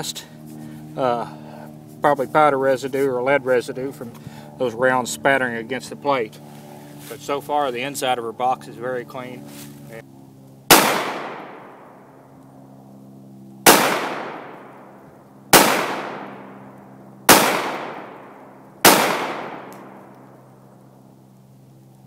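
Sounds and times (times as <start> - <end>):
pistol shots hitting steel plate: 10.7 - 11.8, 13.7 - 14.7, 15.6 - 16.6, 17.3 - 20.0.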